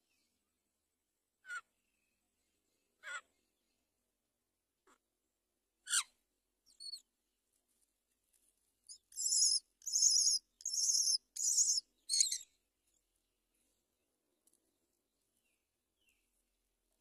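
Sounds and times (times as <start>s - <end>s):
bird nestlings begging calls: 9.2s - 12.4s.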